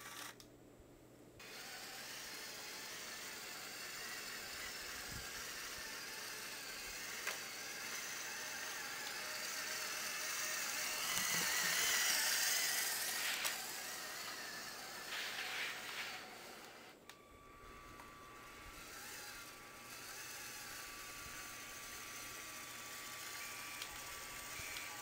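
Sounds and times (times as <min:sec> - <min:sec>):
toy truck motors whirring: 0:00.0 - 0:00.4, 0:01.4 - 0:25.0
sharp clicks: 0:23.7 - 0:24.1.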